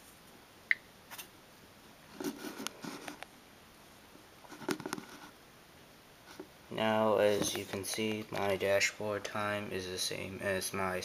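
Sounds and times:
soft clicks and rustles: 2.1 - 3.4, 4.4 - 5.4, 7.2 - 8.6.

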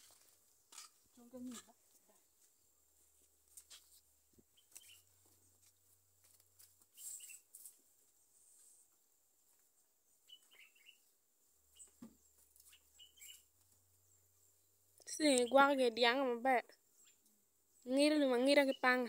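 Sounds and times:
faint bird chirps: 4.5 - 5.6, 6.9 - 8.9, 10.0 - 16.1, 16.7 - 19.0.

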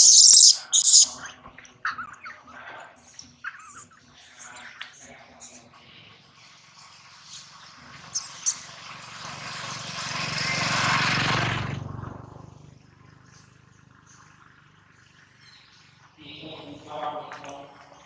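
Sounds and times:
vehicle passing by: 6.6 - 16.2.

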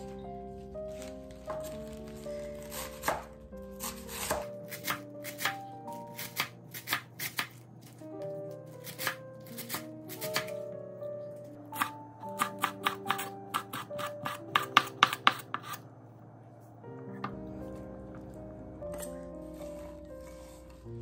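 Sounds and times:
background music: 0.0 - 21.0
knife chopping greens on wooden board: 2.6 - 5.6, 6.2 - 8.0, 8.8 - 10.6, 11.8 - 15.8.

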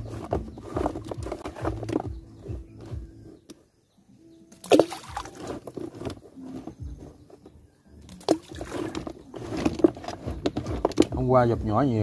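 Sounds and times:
creek water sloshing: 4.5 - 7.1, 8.1 - 11.1
sharp water splashes: 4.6 - 5.4.

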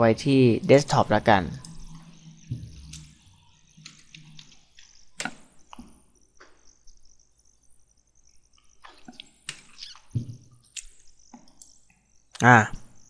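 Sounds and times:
low room noise: 0.0 - 13.0
computer mouse clicks: 2.8 - 3.2, 3.8 - 6.6, 10.6 - 11.8.

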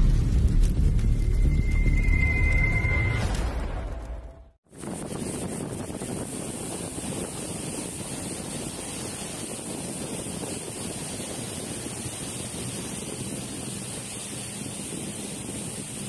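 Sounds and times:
sea water washing around boat: 4.7 - 16.0
wind buffeting microphone: 4.7 - 16.0.

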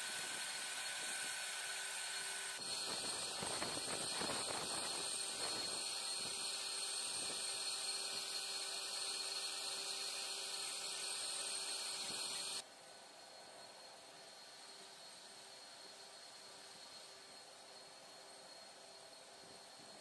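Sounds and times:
aircraft turbines whining: 0.0 - 12.6.

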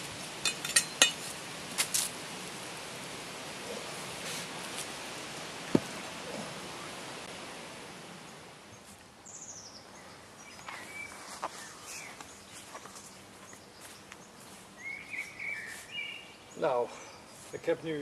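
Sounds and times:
soft rustling hiss: 0.0 - 18.0
small birds chirping: 8.3 - 18.0.

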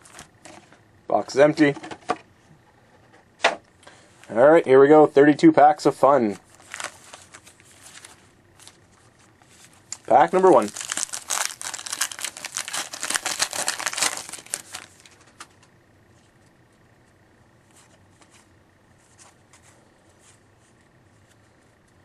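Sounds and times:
wrapper tearing and crinkling: 6.5 - 8.8, 9.9 - 15.4.

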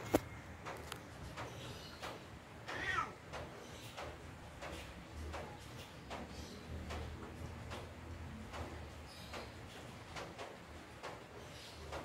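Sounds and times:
cat mewing: 2.7 - 3.2.

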